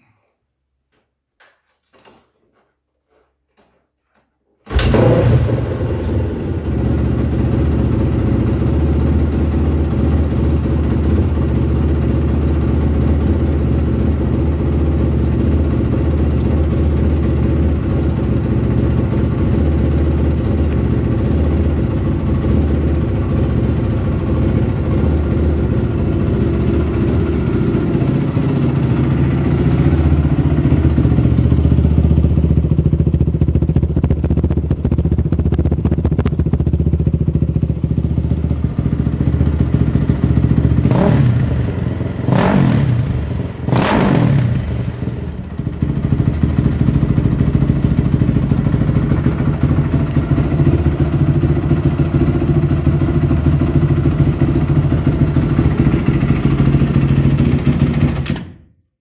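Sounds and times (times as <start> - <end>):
engine revving: 4.7 - 7.0, 40.6 - 45.6
motorcycle engine idling: 4.7 - 58.4.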